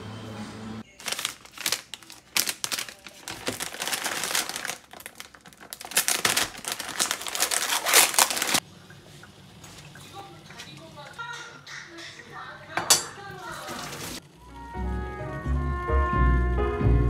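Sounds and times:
plastic bags crinkling: 0.9s - 8.6s.

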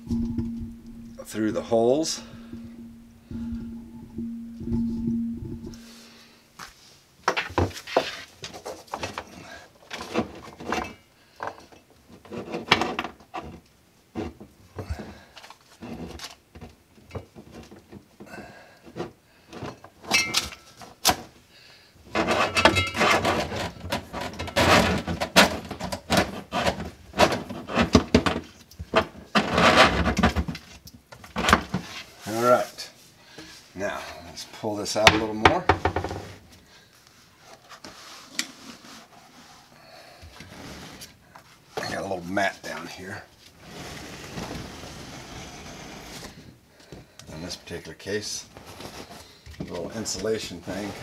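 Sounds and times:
hoses rustling and scraping on wood: 6.7s - 18.2s, 22.1s - 51.0s.

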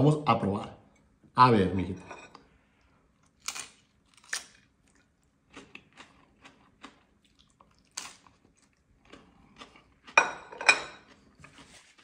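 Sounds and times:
biting crisp tostada: 3.2s - 10.2s
crunching while chewing: 3.2s - 12.0s.

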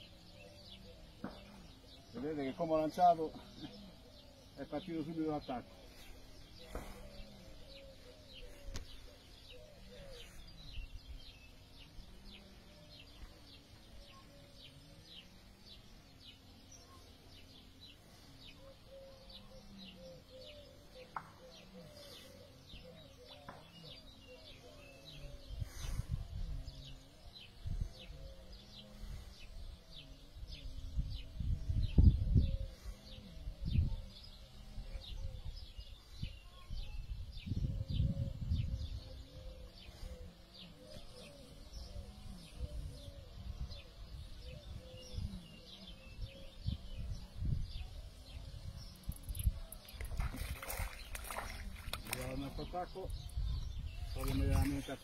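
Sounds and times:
birds chirping: 0.0s - 55.0s
low cooing calls: 3.2s - 55.0s
wind buffeting microphone: 30.5s - 34.3s, 35.0s - 39.6s, 41.8s - 55.0s.

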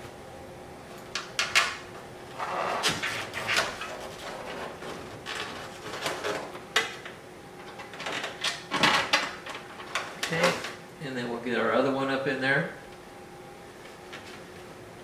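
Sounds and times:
scraping on plastic: 2.4s - 6.5s.

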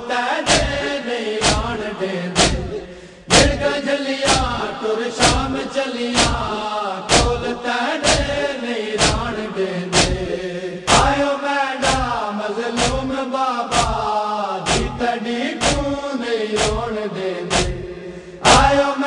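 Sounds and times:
men chanting in unison: 0.0s - 19.0s
chest-beating thumps: 0.5s - 1.8s, 2.4s - 3.7s, 6.2s - 8.4s, 9.0s - 11.2s, 14.7s - 15.0s, 15.6s - 15.9s, 16.6s - 16.9s, 17.5s - 17.9s.

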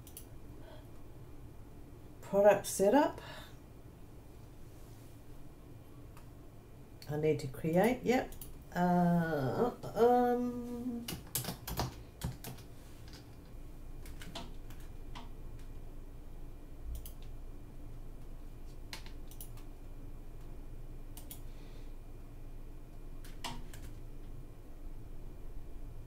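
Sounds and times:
computer mouse clicks: 0.0s - 0.3s, 16.9s - 17.3s, 18.9s - 19.7s, 21.2s - 21.4s
keyboard keystrokes: 11.1s - 13.2s, 14.0s - 15.3s.

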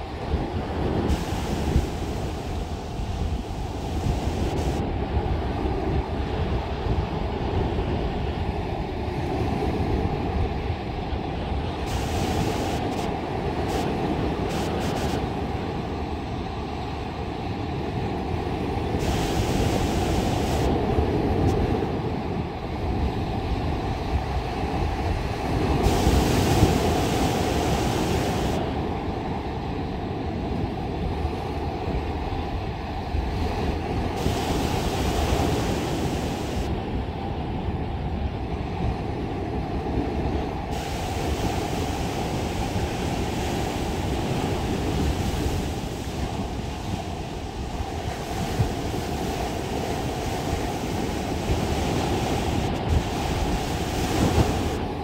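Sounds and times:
wave hissing up the shore: 0.0s - 4.9s, 11.6s - 17.7s, 18.3s - 22.2s, 24.6s - 29.0s, 33.6s - 36.8s, 40.2s - 55.0s
surf rumbling on a beach: 0.0s - 55.0s.

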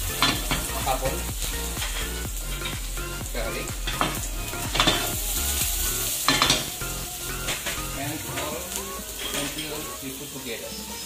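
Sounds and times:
onion sizzling in oil: 0.0s - 11.0s
utensil scraping and knocking a pan: 3.8s - 5.1s.

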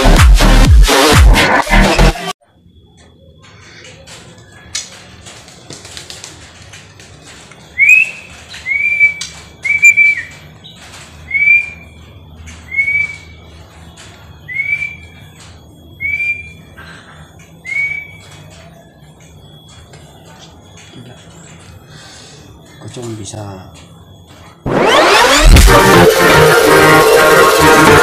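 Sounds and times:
bird whistling clear note: 7.8s - 10.3s.

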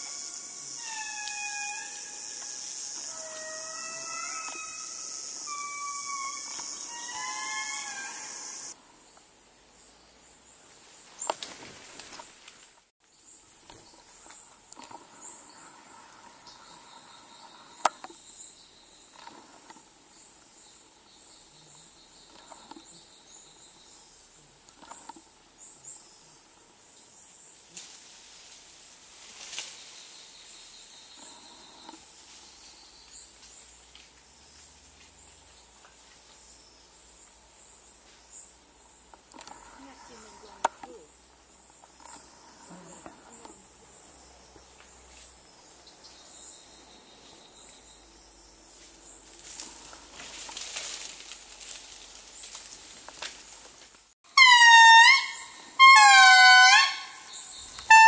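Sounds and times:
high insect tones: 0.0s - 8.8s, 54.3s - 58.0s
faint steady hiss: 0.0s - 54.2s.

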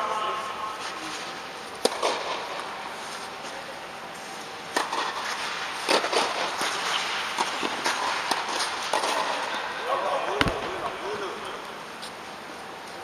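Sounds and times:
tennis balls hit by rackets: 1.8s - 2.6s, 4.7s - 6.8s.

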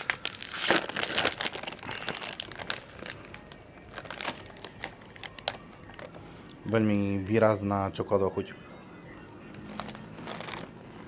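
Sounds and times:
snack bag crinkling: 0.0s - 6.6s, 9.5s - 11.0s.

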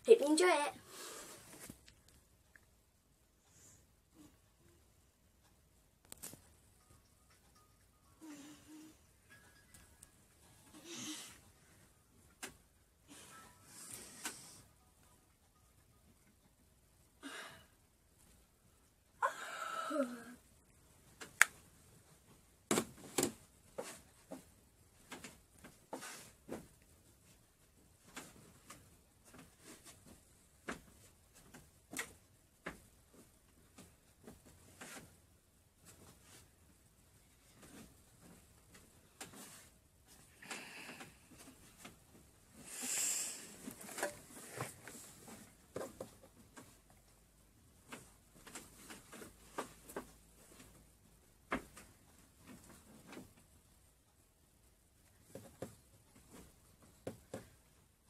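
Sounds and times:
bedding rustling and bumping: 21.0s - 40.3s.

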